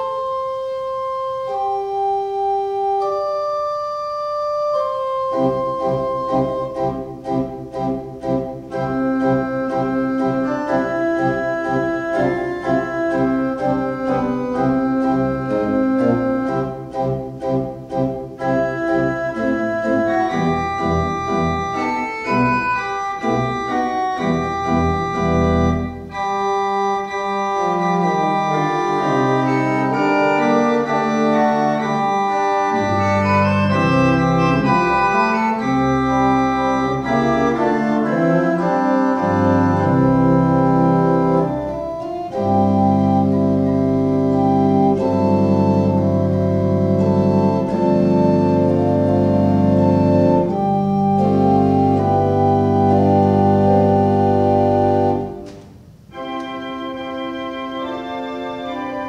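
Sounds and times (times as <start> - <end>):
organ music: 0.0 - 59.0.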